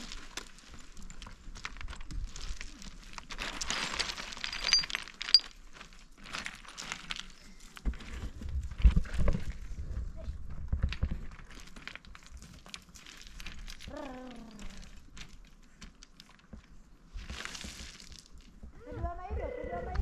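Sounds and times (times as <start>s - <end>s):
dry grass rustling and snapping: 0.0s - 9.6s, 10.7s - 18.5s.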